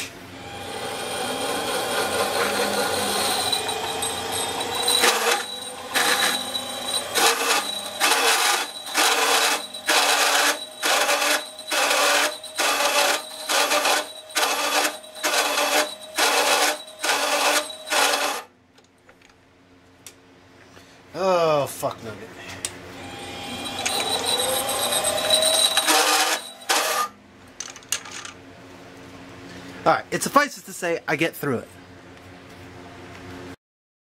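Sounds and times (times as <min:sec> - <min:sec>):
metal lathe cutting metal: 0:00.4 - 0:18.5, 0:23.0 - 0:27.2.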